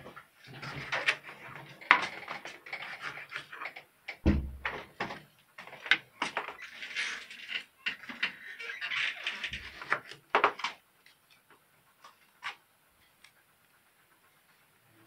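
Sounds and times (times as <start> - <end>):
heavy knock and thump: 4.2 - 4.9.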